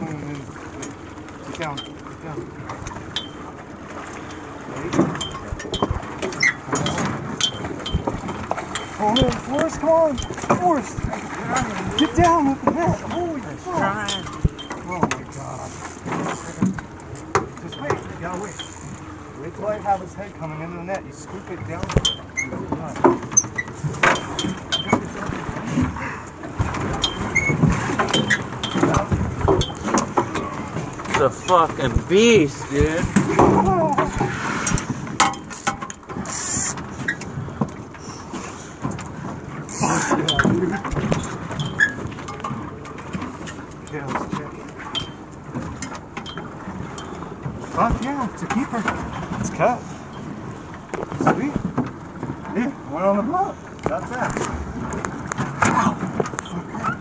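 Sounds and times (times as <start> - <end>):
water sloshing against boat hull: 0.0 - 57.0
wind: 0.0 - 57.0
knocks and clicks: 5.0 - 11.1.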